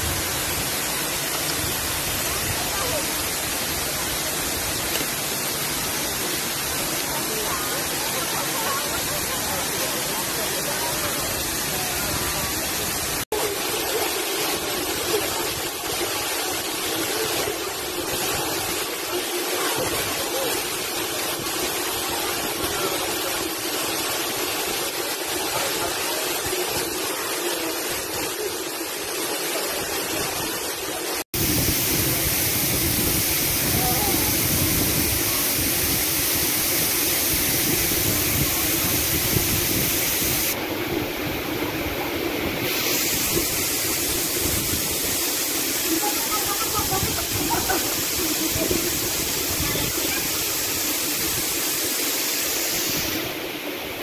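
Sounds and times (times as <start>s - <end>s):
waterfall rushing onto rocks: 0.0s - 54.0s.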